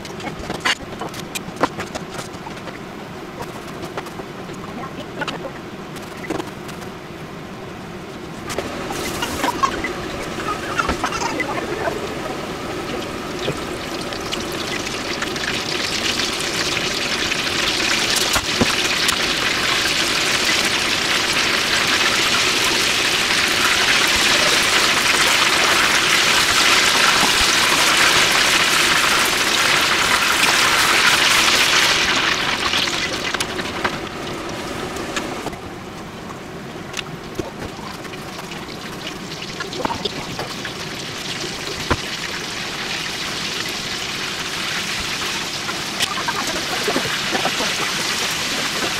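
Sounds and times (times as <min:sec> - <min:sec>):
cutlets deep-frying in oil: 0:08.4 - 0:35.6, 0:37.0 - 0:48.9.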